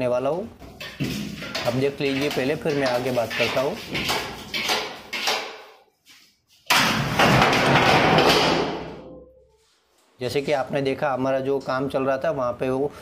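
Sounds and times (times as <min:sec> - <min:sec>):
loud crash of falling objects: 0:06.7 - 0:09.0.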